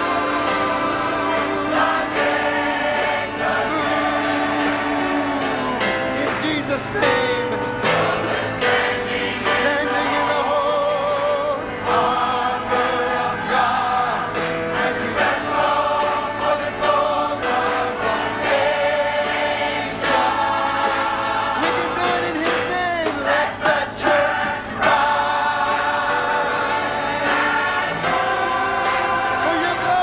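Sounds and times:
choir singing gospel song: 0.0s - 30.0s.

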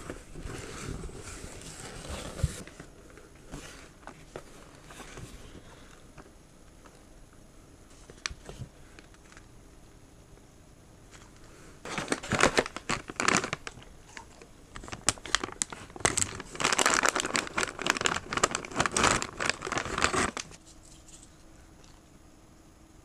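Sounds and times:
plastic bag crinkling: 11.1s - 22.0s.

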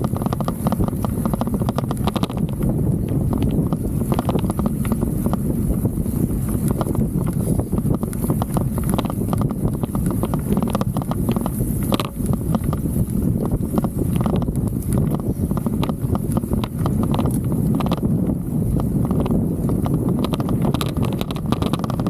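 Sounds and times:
wind rumble on microphone: 0.0s - 22.0s
camera rattling in loose mount: 6.6s - 12.9s, 18.8s - 22.0s.

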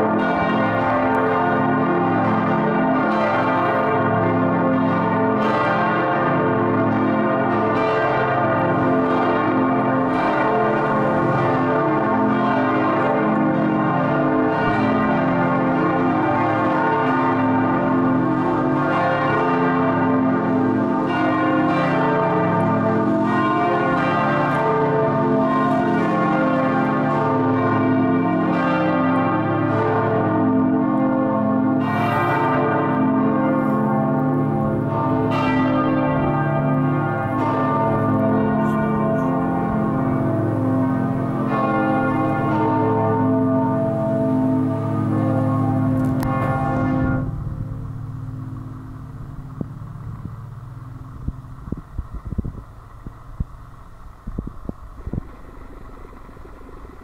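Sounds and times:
large church bells ringing: 0.0s - 54.2s.

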